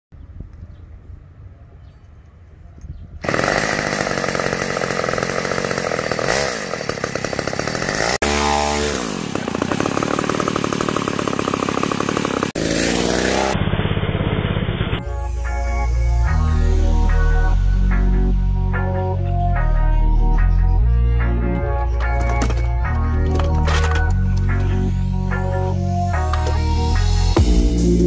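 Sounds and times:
two-stroke engine running fast: 3.2 - 15.0.

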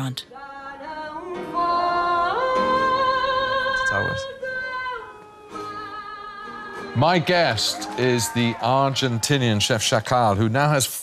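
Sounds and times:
woman singing with vibrato: 0.0 - 7.0.

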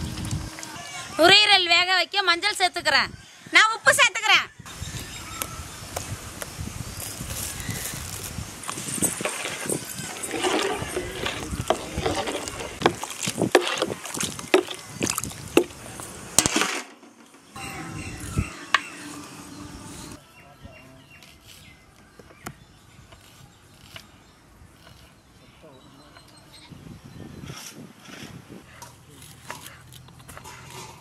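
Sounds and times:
ladle scraping metal pot: 8.7 - 16.9, 30.4 - 31.0
wet sloshing and squelching: 9.2 - 16.7.

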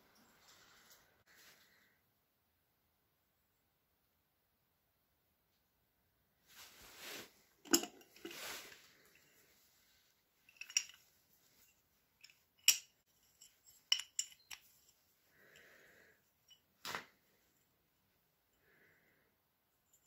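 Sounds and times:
metal hinges clinking: 7.6 - 8.4, 10.5 - 11.1, 12.2 - 15.0.

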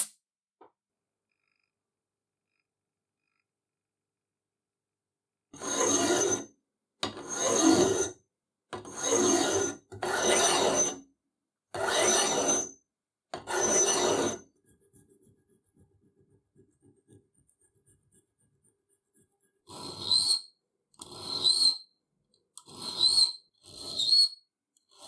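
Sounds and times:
hand file rasping on metal: 5.6 - 6.5, 7.1 - 8.2, 8.8 - 11.0, 11.7 - 12.7, 13.4 - 25.0
faint scrapes and ticks: 14.4 - 20.4.

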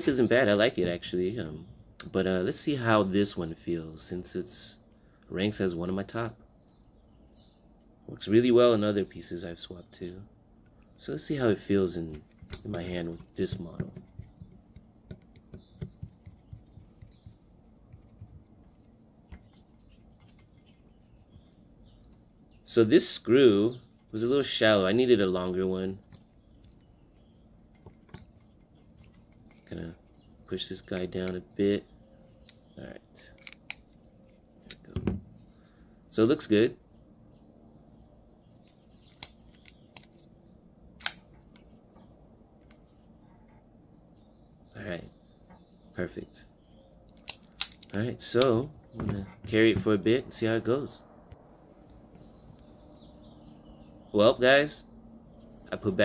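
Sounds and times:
screwdriver clicking and scraping: 18.8 - 21.6.

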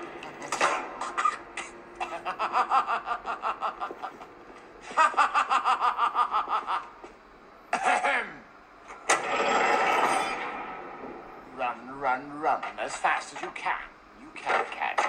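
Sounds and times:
high-pitched rapid laugh: 1.1 - 7.0.

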